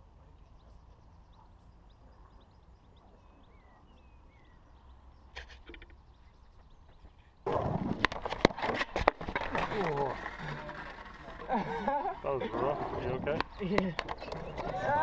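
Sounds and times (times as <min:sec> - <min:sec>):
faint bird chirps: 0:00.0 - 0:07.5
clicks and taps on camera: 0:05.4 - 0:06.0, 0:13.4 - 0:14.7.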